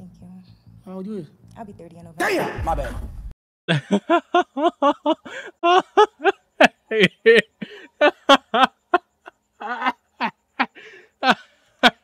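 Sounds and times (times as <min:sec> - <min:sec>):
man laughing hard: 0:03.7 - 0:12.0.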